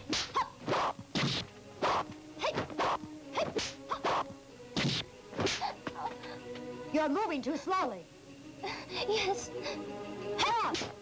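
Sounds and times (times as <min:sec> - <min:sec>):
fight swishes and whacks: 0:00.0 - 0:05.8, 0:10.6 - 0:11.0
soft background music: 0:00.0 - 0:11.0.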